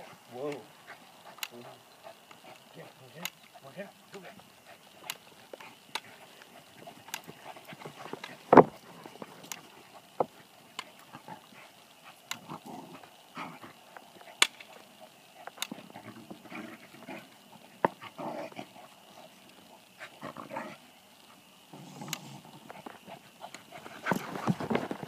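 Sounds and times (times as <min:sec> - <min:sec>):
dog vocal noises: 0:00.7 - 0:24.7
dogs scuffling: 0:05.2 - 0:11.7, 0:22.6 - 0:25.0.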